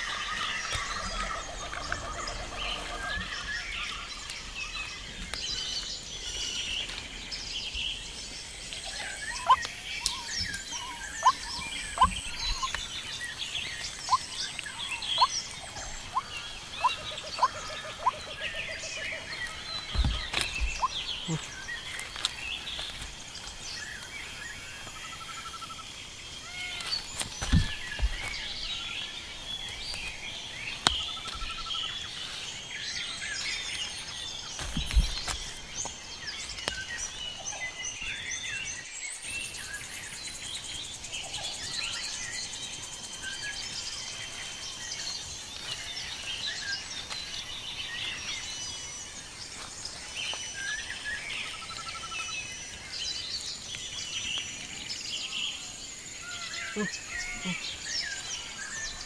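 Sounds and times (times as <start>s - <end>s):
small birds chirping: 0.0s - 59.0s
hands patting wet earth: 26.8s - 31.7s.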